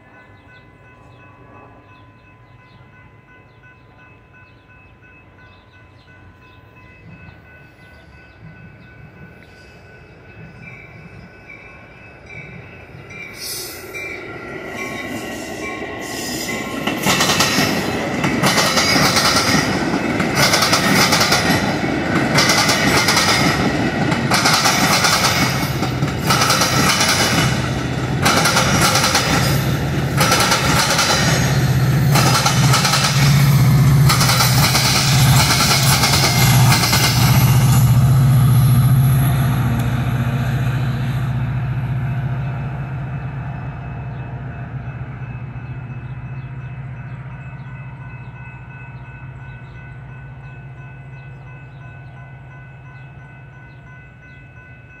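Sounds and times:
crossing warning bells ringing: 0.0 - 55.0
low locomotive engine drone: 0.0 - 55.0
train rail noise: 0.0 - 55.0
wheel clacks over rail joints: 16.9 - 37.4.

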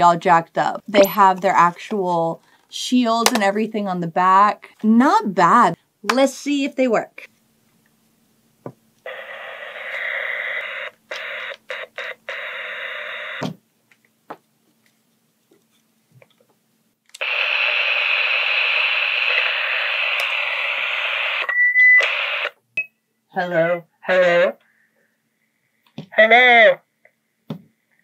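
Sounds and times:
walkie-talkie static hiss: 9.0 - 13.6, 17.2 - 22.6, 26.1 - 26.9
walkie-talkie clicks: 9.8 - 12.5, 20.1 - 20.4.

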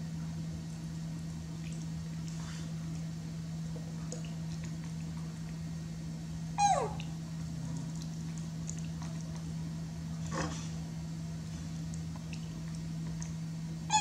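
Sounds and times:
steady low hum: 0.0 - 14.0
macaque squealing: 6.6 - 7.0.

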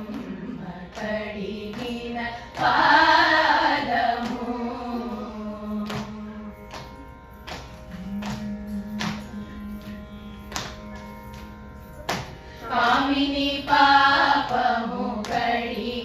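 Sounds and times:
women's group singing: 0.0 - 6.5, 12.6 - 16.0
steady drone: 7.9 - 16.0.

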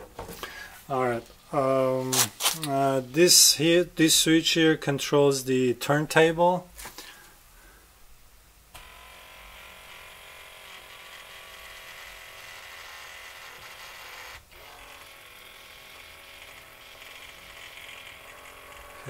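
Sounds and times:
electric motor whirring: 8.8 - 19.0.

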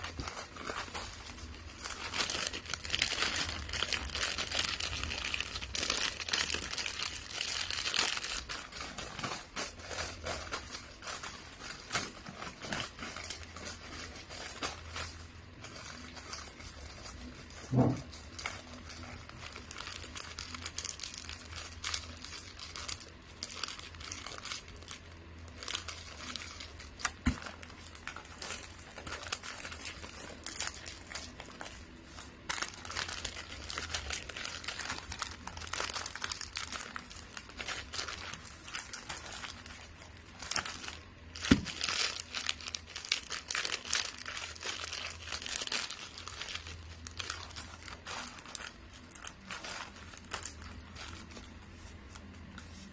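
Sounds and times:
wrapping paper crinkling: 0.0 - 52.9.

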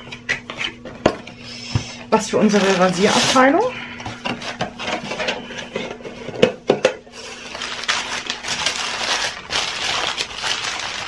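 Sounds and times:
tissue paper rustling: 2.4 - 3.6, 7.2 - 11.0.

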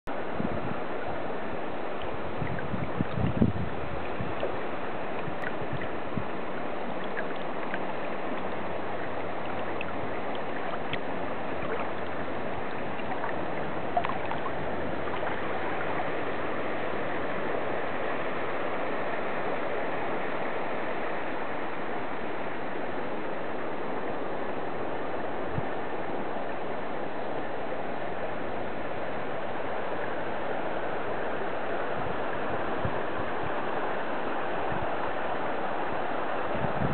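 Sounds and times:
river water flowing over stones: 0.1 - 36.9
small water splash: 1.9 - 17.5.

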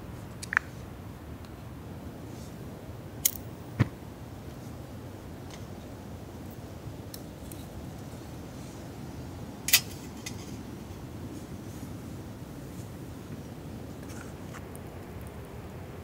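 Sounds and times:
low background noise: 0.0 - 16.0
metal windscreen clinking: 9.6 - 10.7.

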